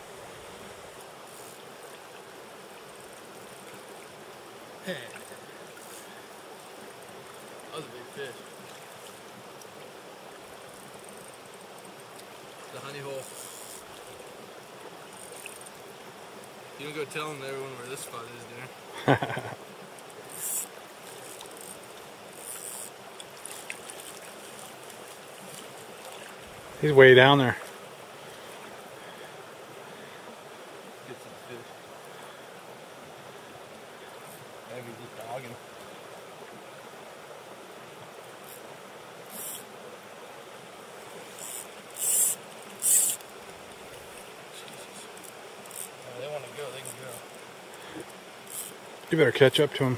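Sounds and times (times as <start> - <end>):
fly reel drag buzzing: 0.0 - 4.3, 5.1 - 16.7, 19.6 - 26.8, 38.2 - 39.9, 40.8 - 49.2
river water flowing: 0.0 - 49.9
high hissing bursts: 20.3 - 20.7, 39.3 - 39.7, 41.3 - 43.2.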